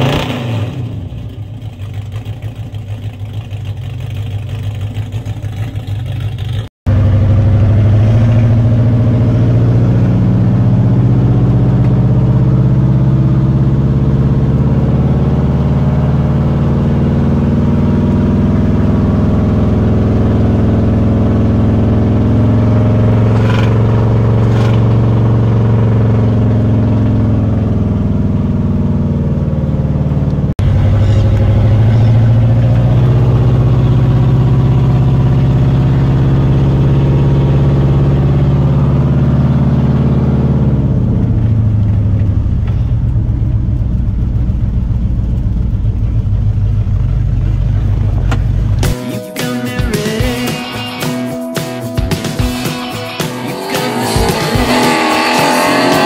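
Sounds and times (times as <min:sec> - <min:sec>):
truck engine drone while driving: 0:00.0 - 0:56.0
vee eight engine idling: 0:40.6 - 0:56.0.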